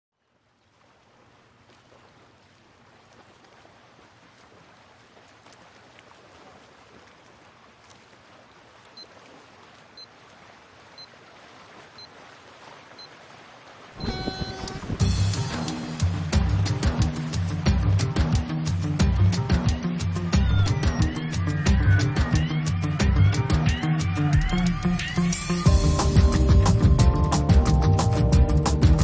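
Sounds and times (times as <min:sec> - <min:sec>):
short high beeps: 0:14.0 - 0:15.0
sea waves hissing: 0:14.0 - 0:17.6.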